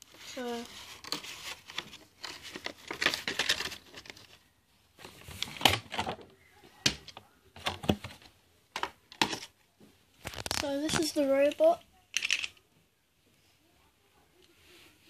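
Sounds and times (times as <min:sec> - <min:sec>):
rustling: 0:00.0 - 0:08.4, 0:10.1 - 0:12.7.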